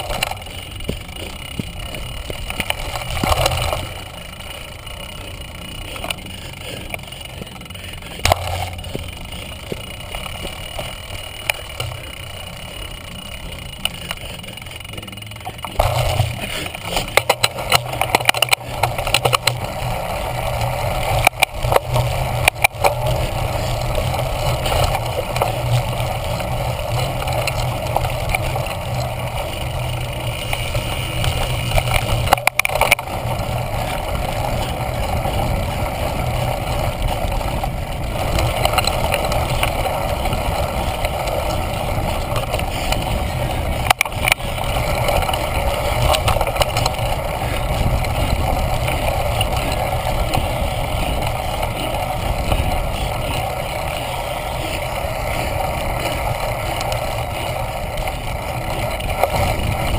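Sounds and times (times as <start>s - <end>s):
bike rattling over bumps: 0.0s - 59.9s
wind rushing over microphone: 15.8s - 59.9s.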